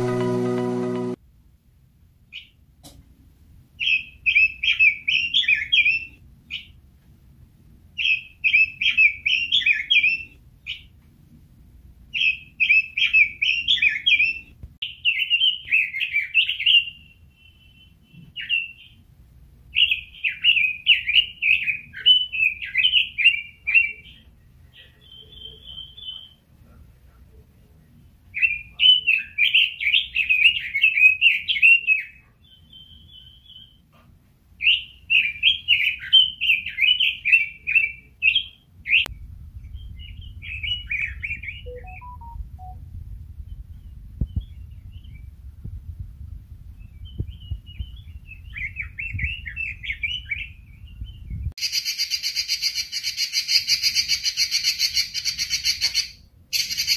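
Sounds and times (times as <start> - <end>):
bird fluty warbling: 40.0 - 42.8
bird whistled notes: 40.6 - 42.8.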